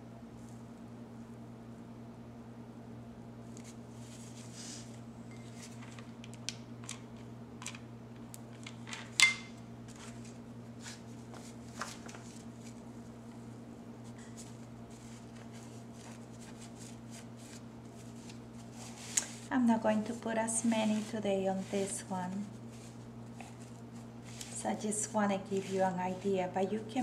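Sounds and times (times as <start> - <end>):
steady low hum: 0.0 - 27.0
petals rustling: 14.1 - 24.8.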